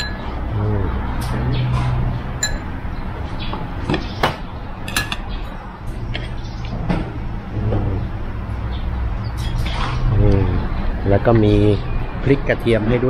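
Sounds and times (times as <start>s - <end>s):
glasses and tableware clinking: 0.0s - 0.4s, 1.2s - 2.8s, 4.8s - 5.6s
steady low hum: 0.0s - 12.9s.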